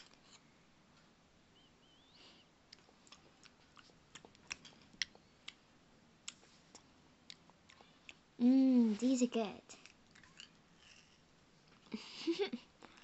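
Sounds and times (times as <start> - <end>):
chewing and crunching candy: 2.7 - 5.6, 6.2 - 8.3, 9.8 - 12.0.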